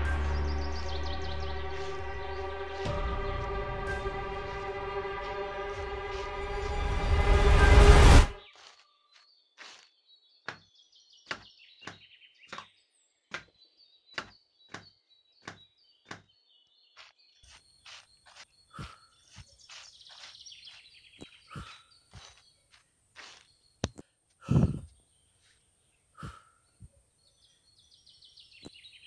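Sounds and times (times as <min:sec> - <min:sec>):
birds chirping: 0:00.0 - 0:07.4, 0:08.4 - 0:29.0
footsteps on stony path and leaves: 0:00.0 - 0:07.6, 0:08.4 - 0:12.7, 0:16.9 - 0:24.0.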